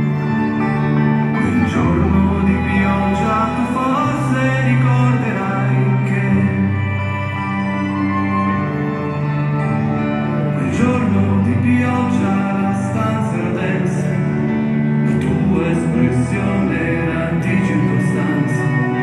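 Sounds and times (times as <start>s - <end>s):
song over stadium loudspeakers: 0.0s - 19.0s
man singing: 1.2s - 7.8s, 10.4s - 19.0s.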